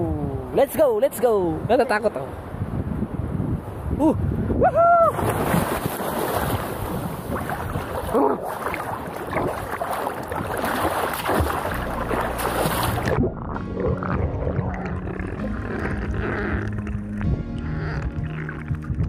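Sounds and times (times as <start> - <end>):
wind buffeting microphone: 0.0 - 15.2
sea water splashing and sloshing: 5.1 - 17.4.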